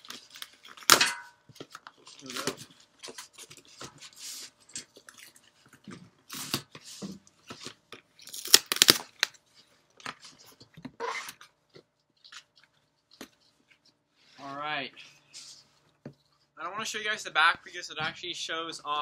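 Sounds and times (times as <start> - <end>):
tape tearing: 0.0 - 1.0, 1.6 - 5.4, 6.3 - 6.8, 7.5 - 9.4, 11.0 - 11.5
plastic packing crinkling: 0.0 - 6.7, 7.4 - 11.5.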